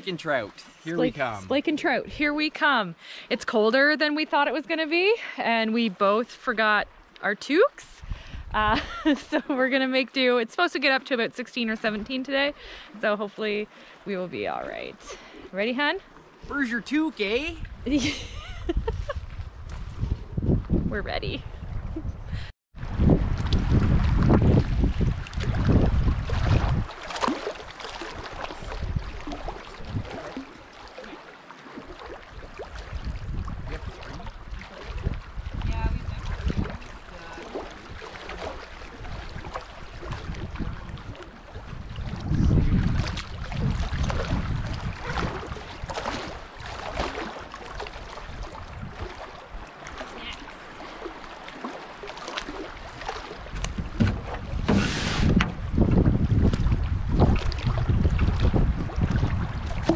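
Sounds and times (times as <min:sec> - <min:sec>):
wind buffeting microphone: 0:07.8 - 0:09.4, 0:16.4 - 0:30.5, 0:32.3 - 0:50.4, 0:52.7 - 0:59.9.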